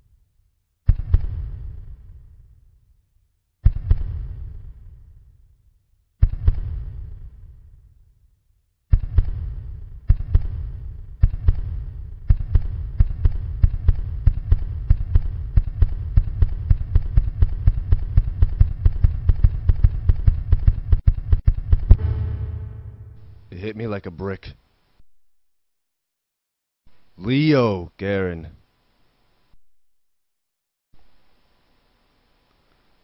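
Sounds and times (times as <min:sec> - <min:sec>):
heavy booming hits: 0:21.9 - 0:23.6.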